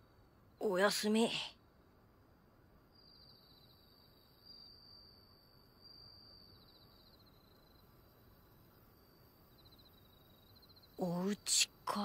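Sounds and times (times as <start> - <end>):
crickets trilling: 2.9 - 12.0.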